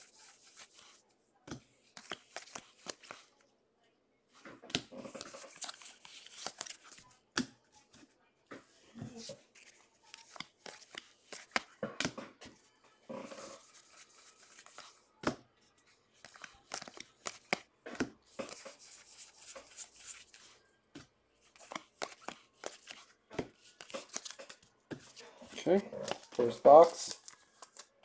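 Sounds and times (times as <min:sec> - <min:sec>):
cards rustling against each other: 0:00.0 - 0:03.4, 0:04.4 - 0:08.2, 0:09.1 - 0:12.6, 0:13.2 - 0:28.0
cards flicking and tapping: 0:00.2 - 0:03.3, 0:04.4 - 0:07.5, 0:09.6 - 0:12.5, 0:13.4 - 0:15.4, 0:16.2 - 0:25.2.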